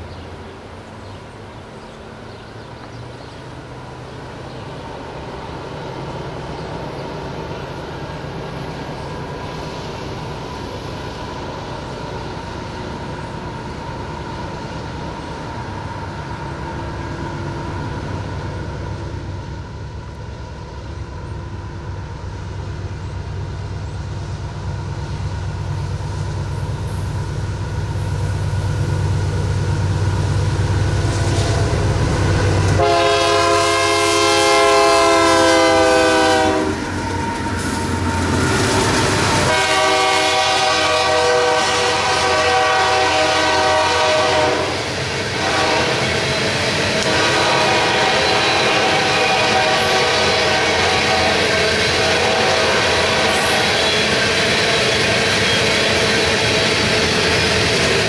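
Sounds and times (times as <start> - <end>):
locomotive engine rumble: 0.0 - 58.0
train air horn: 31.1 - 36.9, 39.2 - 55.9.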